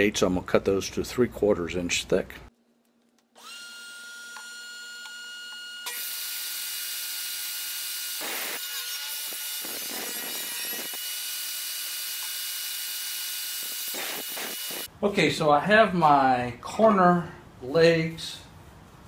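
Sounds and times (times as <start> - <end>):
saw cutting wood: 3.4 - 14.9.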